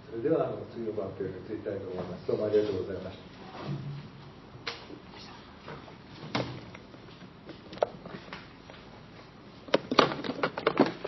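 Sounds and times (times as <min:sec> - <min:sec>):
knocks of objects being handled: 0:09.7 - 0:11.0.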